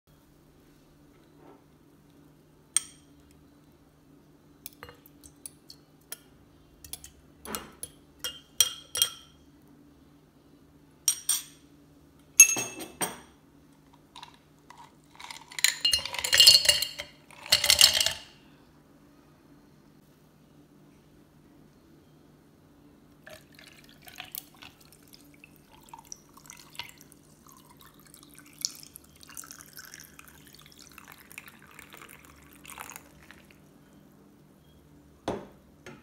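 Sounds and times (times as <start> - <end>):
glass and utensils clinking: 6.9 - 9.4, 12.4 - 13.3, 14.2 - 18.3
ice cubes clattering into jar: 14.2 - 18.3.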